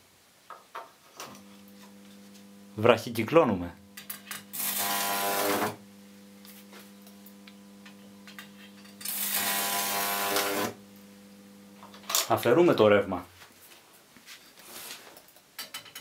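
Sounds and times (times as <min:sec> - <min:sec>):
transformer mains hum: 0:01.2 - 0:13.3
electric arc crackling: 0:01.4 - 0:12.5.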